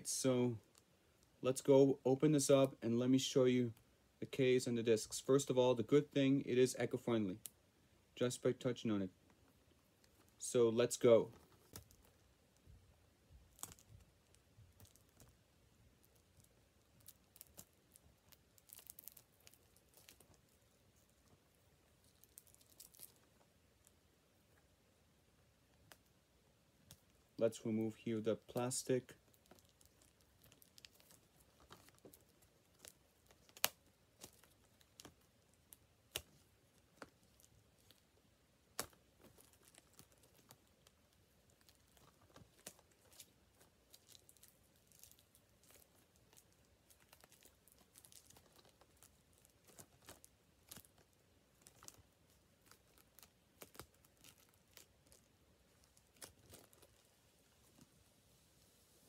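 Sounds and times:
plastic wrap crinkling and tearing: 0:11.3 - 0:12.7, 0:13.3 - 0:24.0, 0:28.4 - 0:58.0.

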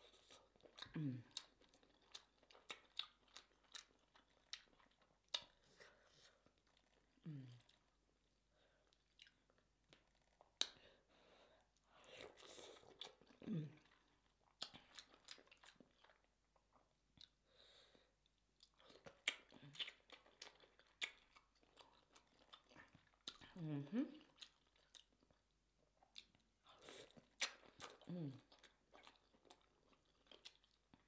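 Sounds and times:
wet chewing and sucking: 0:26.0 - 0:31.0.

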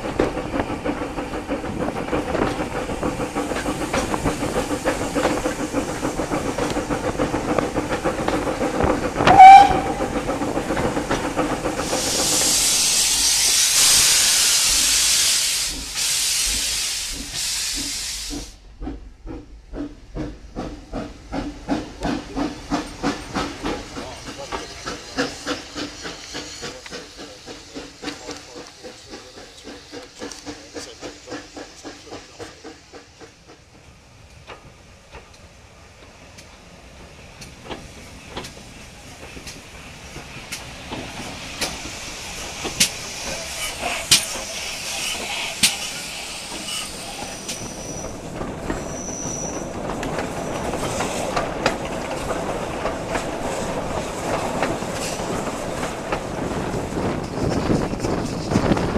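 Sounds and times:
train wheels clacking on rail joints: 0:00.0 - 0:58.9
train wheel squeal: 0:07.6 - 0:18.5, 0:22.3 - 0:33.3, 0:41.2 - 0:52.3.

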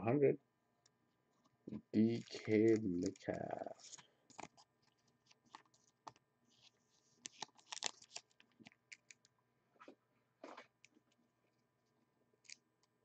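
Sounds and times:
plastic sleeve rustling: 0:02.0 - 0:09.2.

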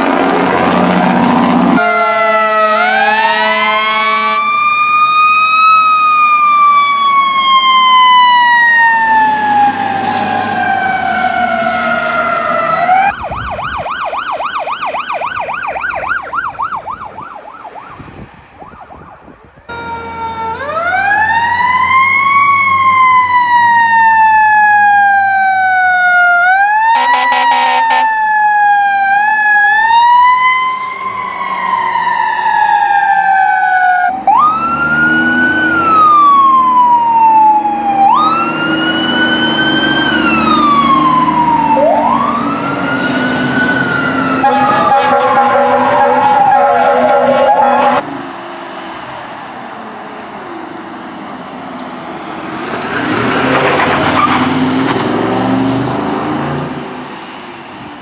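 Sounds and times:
air horn blast: 0:00.0 - 0:04.5, 0:27.0 - 0:28.1, 0:44.4 - 0:48.0
truck engine: 0:00.0 - 0:17.6, 0:19.7 - 0:58.0
fast yelp siren: 0:00.0 - 0:48.0
wailing siren: 0:00.0 - 0:48.2, 0:48.9 - 0:56.7.

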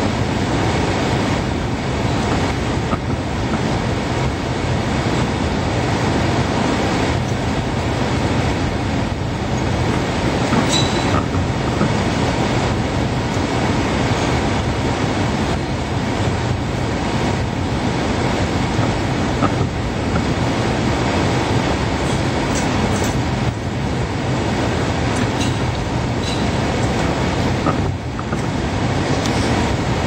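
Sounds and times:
diesel engine under load: 0:00.0 - 0:30.0
high squeaks: 0:10.5 - 0:11.3, 0:25.2 - 0:26.6.

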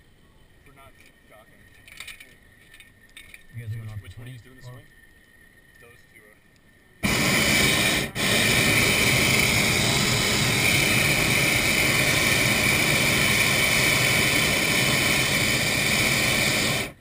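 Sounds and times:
propane burner roaring: 0:07.0 - 0:17.0.

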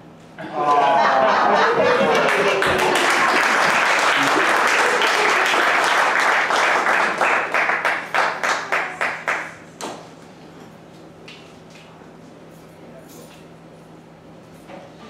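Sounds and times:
audience applauding: 0:00.6 - 0:09.6.

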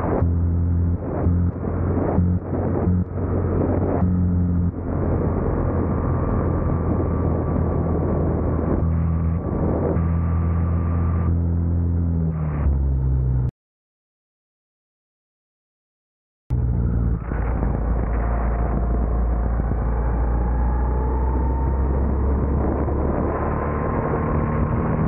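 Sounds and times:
go-kart engine running: 0:16.5 - 0:25.0.

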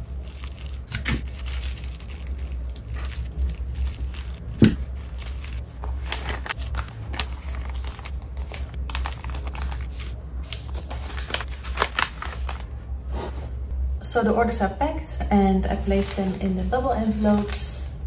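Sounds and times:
paper bags being handled: 0:00.0 - 0:12.8
tissue paper rustling: 0:00.0 - 0:13.6, 0:17.0 - 0:17.7.

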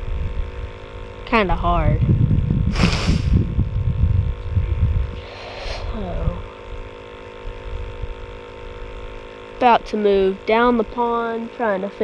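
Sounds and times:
wind buffeting microphone: 0:00.0 - 0:09.2
faint electrical hum: 0:00.0 - 0:12.0.

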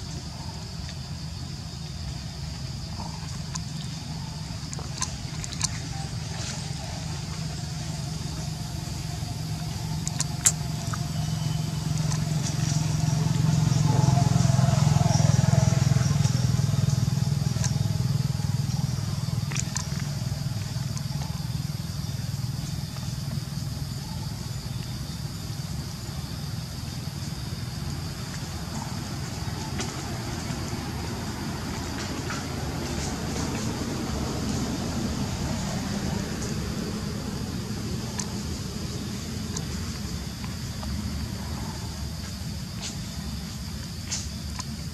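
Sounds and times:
vehicle engine hum passing: 0:00.0 - 0:44.9
sharp clicks: 0:10.0 - 0:11.0.

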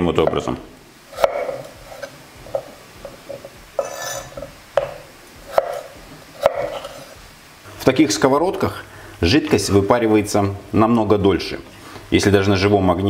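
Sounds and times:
knife chopping potatoes on board: 0:01.1 - 0:07.2.

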